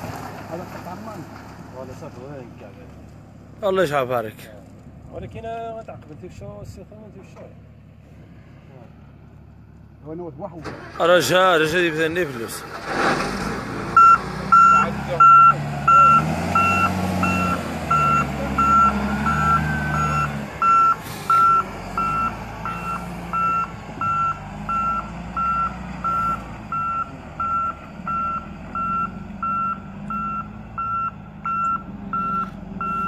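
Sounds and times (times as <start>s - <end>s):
diesel engine running: 6.0s - 33.0s
reversing alarm beeping: 14.0s - 33.0s.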